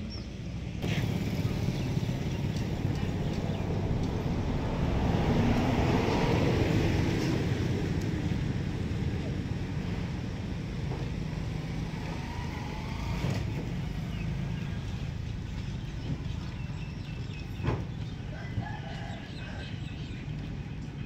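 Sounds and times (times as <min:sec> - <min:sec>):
low rumble: 0:00.8 - 0:10.4
rooster crowing: 0:18.3 - 0:19.8.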